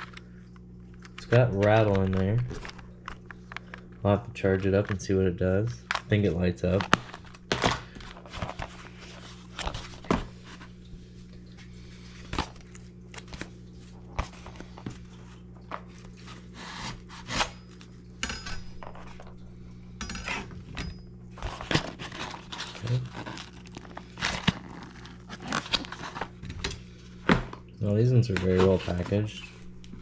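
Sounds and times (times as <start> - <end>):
plastic lures and packaging handled: 0.0 - 10.8, 21.4 - 27.3
steady low hum: 0.0 - 30.0.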